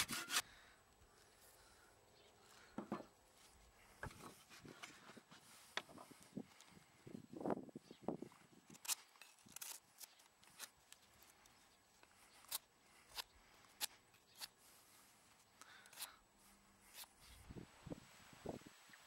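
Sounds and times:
knife scraping bark off wood: 0.0s - 0.4s, 16.8s - 17.3s.

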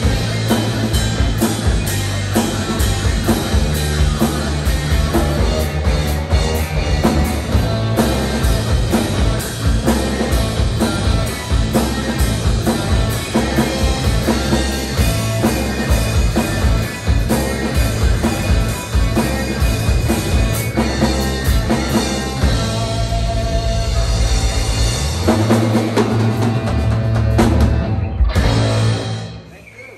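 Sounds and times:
drum kit beat: 0.0s - 29.5s
electric bass: 0.0s - 29.5s
distorted electric guitar: 0.0s - 29.7s.

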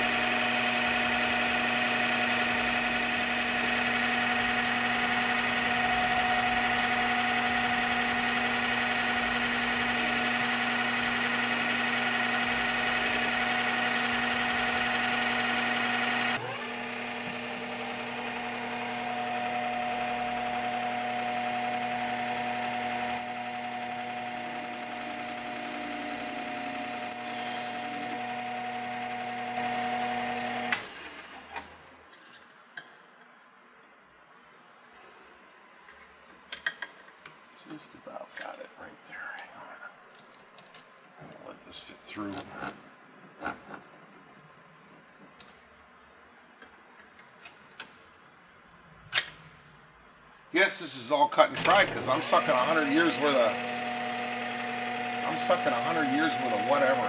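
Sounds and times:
metal lathe whining: 0.0s - 30.8s, 51.6s - 57.0s.

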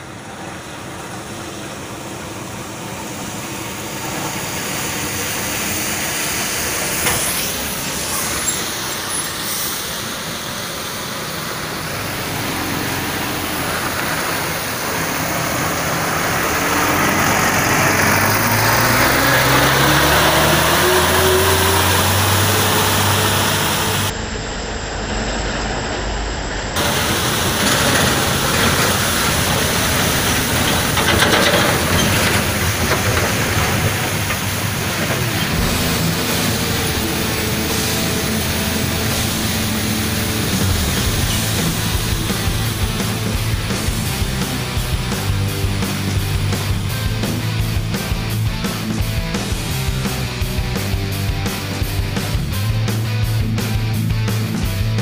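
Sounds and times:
diesel trucks passing: 0.0s - 55.0s
truck engine accelerating: 0.0s - 55.0s
water spraying: 2.2s - 24.1s, 26.8s - 48.2s.

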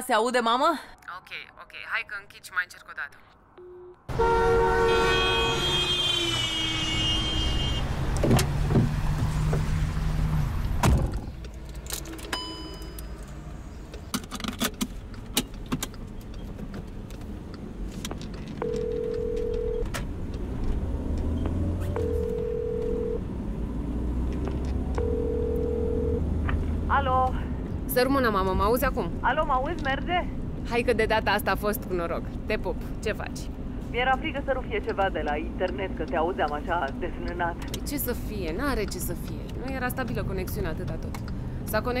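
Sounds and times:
engine and road rumble: 3.2s - 42.0s
telephone ringback tone: 18.6s - 19.8s, 22.0s - 23.2s, 25.0s - 26.2s.

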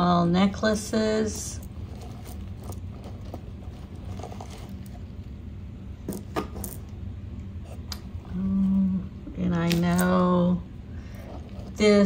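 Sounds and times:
low steady hum: 0.0s - 12.0s
jewelry clicking and rattling: 1.6s - 5.2s.

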